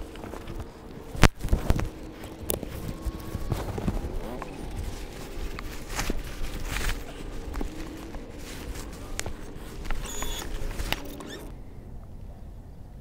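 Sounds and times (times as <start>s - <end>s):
footsteps on boat deck: 0.0s - 11.6s
faint steady hum: 0.0s - 13.0s.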